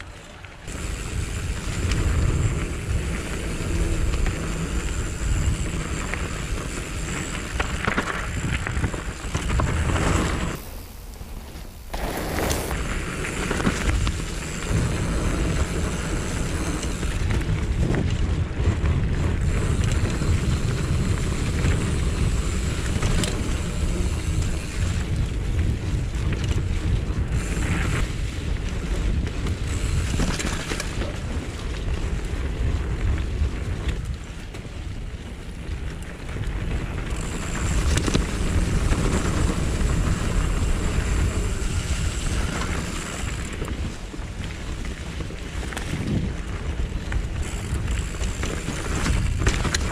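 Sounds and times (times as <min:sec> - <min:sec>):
wind buffeting microphone: 0:00.0 - 0:49.9
bike rattling and knocking: 0:00.6 - 0:10.7, 0:11.7 - 0:49.9
tyre rumble: 0:00.8 - 0:24.6.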